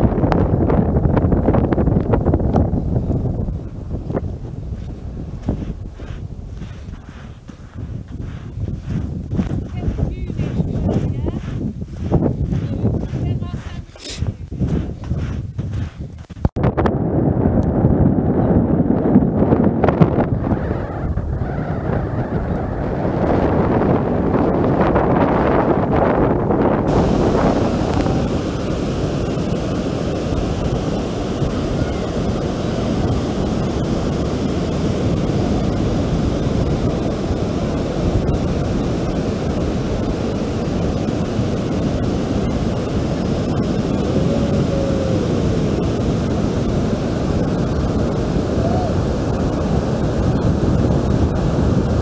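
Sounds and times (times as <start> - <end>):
surf breaking on beach: 0.0 - 16.0, 17.5 - 52.0
wind buffeting microphone: 0.0 - 52.0.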